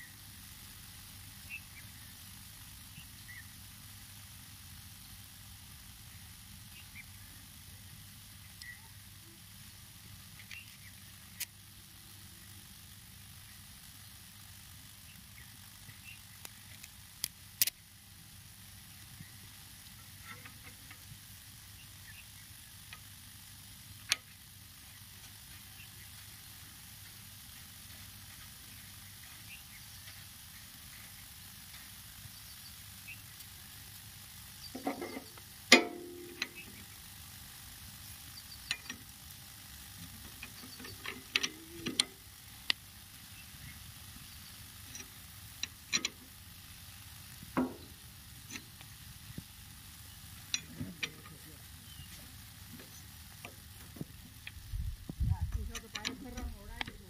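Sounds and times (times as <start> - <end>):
metallic clicks of small fittings: 16.4 - 17.8, 34.7 - 36.8, 38.6 - 39.1, 40.2 - 42.8, 44.9 - 46.3, 47.5 - 49.4, 50.4 - 51.5, 55.5 - 57.0.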